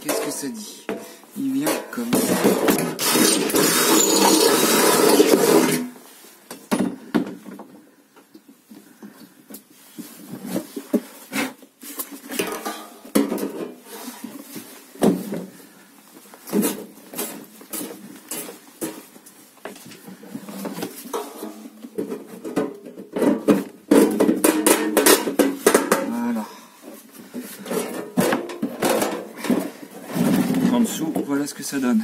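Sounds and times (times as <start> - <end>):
metal parts and tools clattering: 0.0 - 5.9, 12.0 - 13.9, 19.8 - 26.2, 27.6 - 30.9
cordless drill boring through metal: 3.0 - 5.8.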